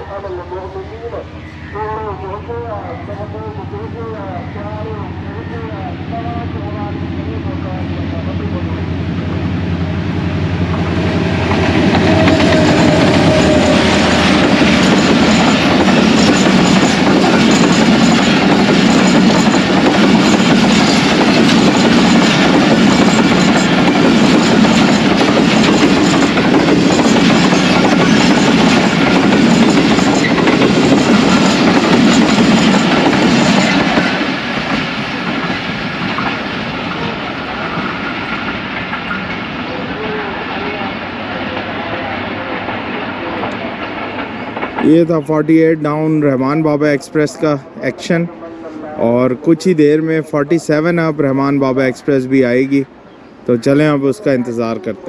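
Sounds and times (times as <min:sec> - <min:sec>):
locomotive engine hum: 0:00.0 - 0:55.0
train wheels clattering on rails: 0:08.7 - 0:40.2, 0:41.5 - 0:46.2.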